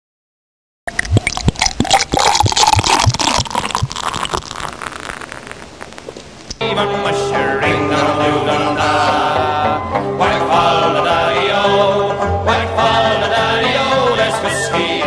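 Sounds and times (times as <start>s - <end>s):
beer pouring into glass: 0.9s - 6.1s
low plops: 0.9s - 6.6s.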